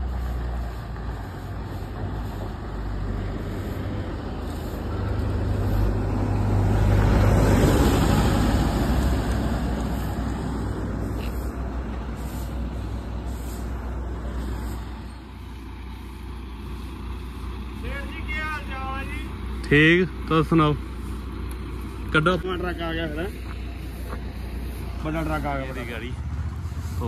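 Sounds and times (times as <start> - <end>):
truck diesel engine rumbling: 0.0 - 27.0.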